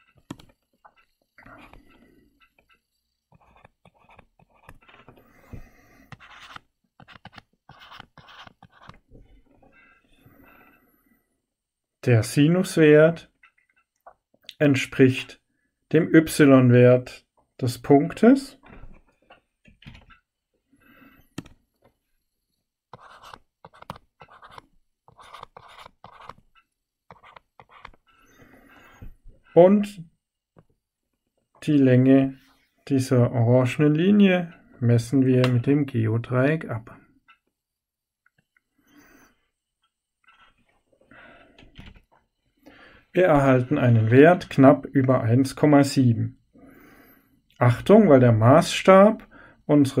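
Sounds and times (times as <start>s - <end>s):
stylus scratching on tablet screen: 0.0s - 10.0s, 22.9s - 29.6s, 40.2s - 40.6s.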